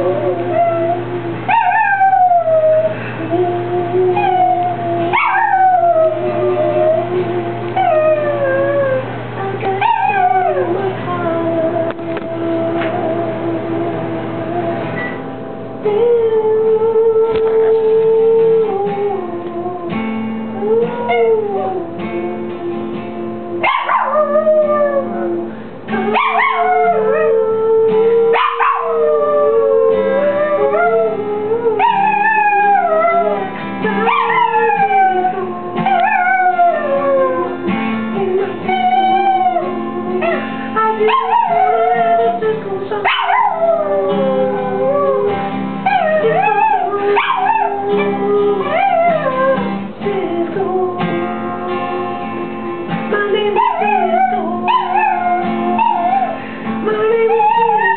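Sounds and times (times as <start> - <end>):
dog howling: 0.0 - 11.9, 23.6 - 52.2, 53.2 - 57.9
music with held notes: 0.0 - 57.9.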